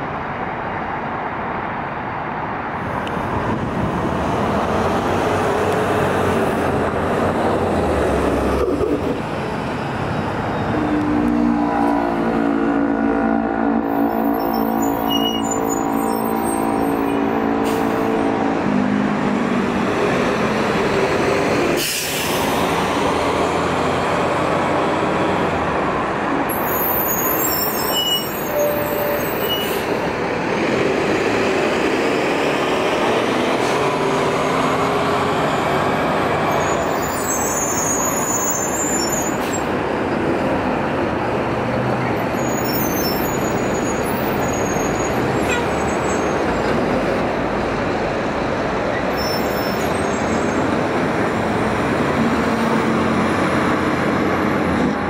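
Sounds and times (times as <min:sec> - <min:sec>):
buses engines and tyres: 0:00.0 - 0:55.0
air brakes hissing: 0:21.8 - 0:22.6.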